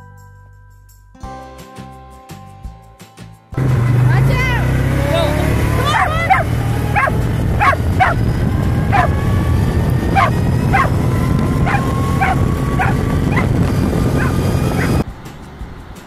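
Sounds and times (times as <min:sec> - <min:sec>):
steady low rumble: 0:05.6 - 0:15.1
dog barking and yipping: 0:05.7 - 0:09.2, 0:10.0 - 0:15.0.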